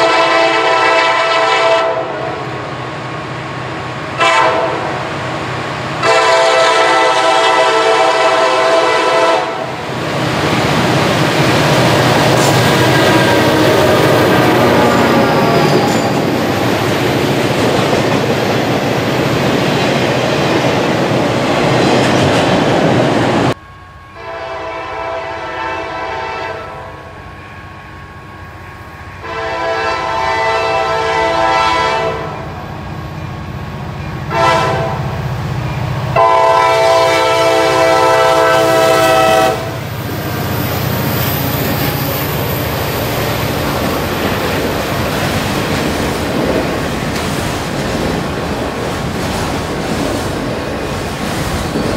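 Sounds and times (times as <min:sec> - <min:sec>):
locomotive air horn blasts: 0:00.0 - 0:02.4, 0:04.2 - 0:05.1, 0:06.0 - 0:09.8, 0:12.3 - 0:16.0, 0:23.6 - 0:28.4, 0:29.1 - 0:32.6, 0:34.2 - 0:35.2, 0:36.1 - 0:40.6
freight cars rumbling past: 0:09.7 - 0:23.6.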